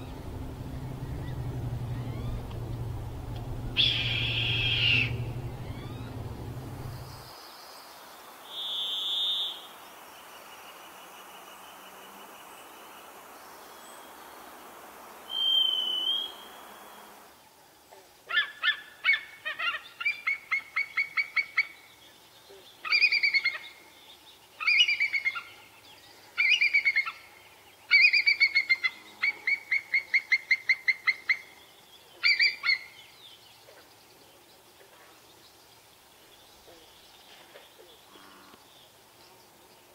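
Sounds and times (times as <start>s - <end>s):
thrush whistled song: 0.0s - 7.3s, 8.5s - 9.7s, 15.3s - 17.2s
eagle piping calls: 0.6s - 7.0s, 32.2s - 32.9s.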